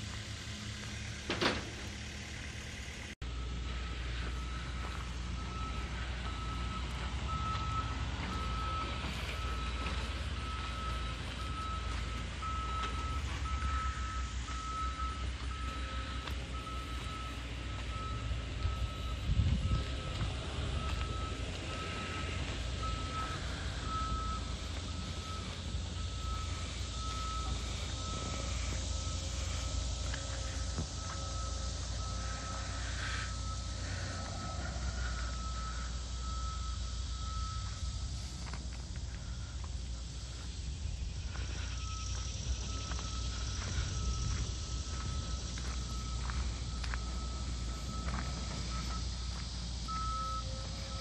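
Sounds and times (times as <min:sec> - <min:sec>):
diesel engine idling: 0:00.0 - 0:51.0
backup alarm beeping: 0:03.2 - 0:51.0
footsteps on gravel: 0:04.1 - 0:13.8, 0:19.4 - 0:32.4, 0:41.2 - 0:49.6.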